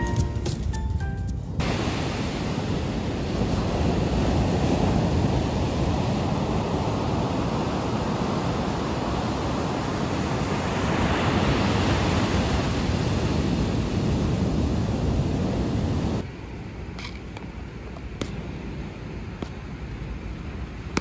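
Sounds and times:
waves breaking on beach: 1.6 - 16.2.

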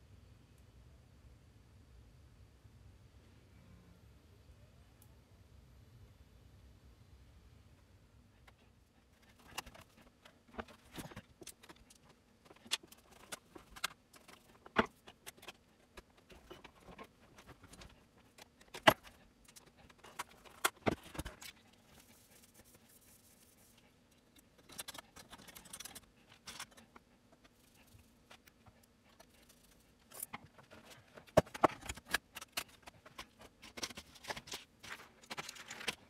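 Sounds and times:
soft rustle: 21.2 - 24.2.

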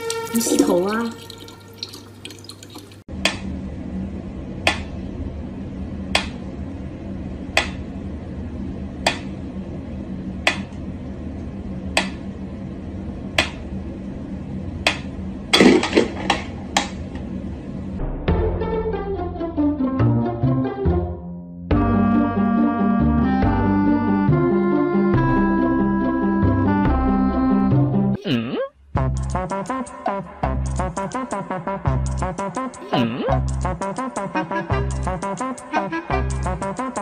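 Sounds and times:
steady low hum: 3.0 - 18.1, 28.8 - 37.0.

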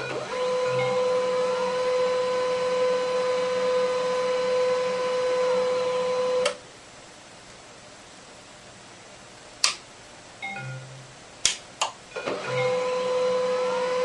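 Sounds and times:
printer motor whining: 0.0 - 6.6, 12.2 - 14.0.

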